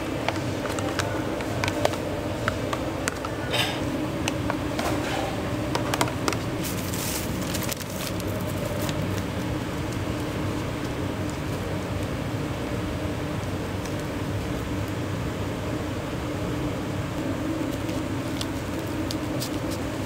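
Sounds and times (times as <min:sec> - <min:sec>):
kitchen ventilation hum: 0:00.0 - 0:20.0
plastic zip bag rustling: 0:06.6 - 0:10.2.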